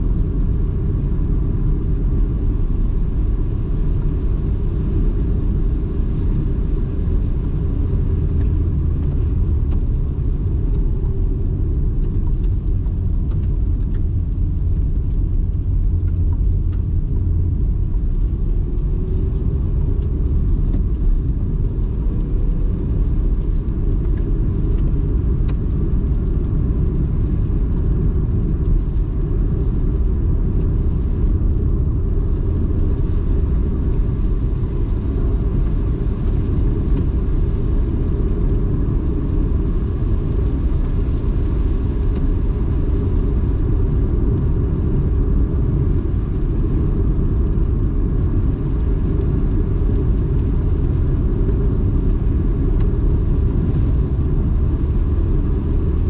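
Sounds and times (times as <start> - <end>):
car engine and tyres rumbling: 0.0 - 56.0.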